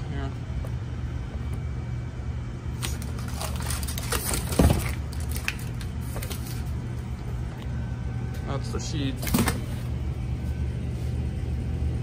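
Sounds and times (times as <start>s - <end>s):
crinkling foil sheets and cardboard: 2.8s - 6.8s.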